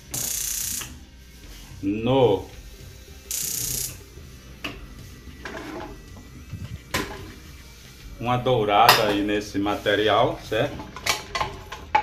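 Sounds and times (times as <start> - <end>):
gas burner ignition hissing: 0.0 - 12.0.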